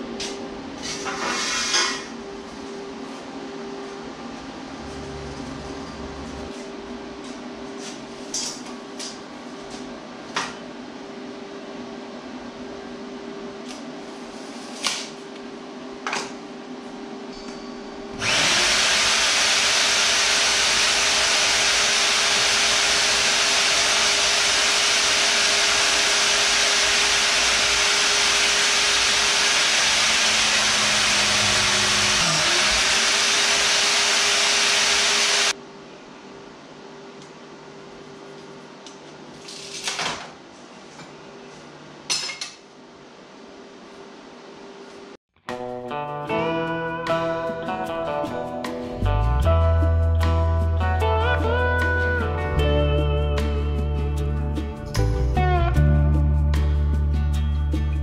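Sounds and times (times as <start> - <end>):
bench power tool running: 18.1 - 35.6.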